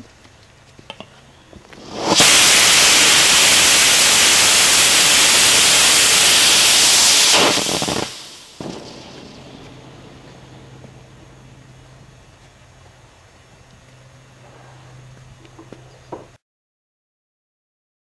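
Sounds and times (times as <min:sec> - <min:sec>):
igniter pops: 0:01.7 - 0:09.0
rocket motor hissing: 0:01.7 - 0:12.4.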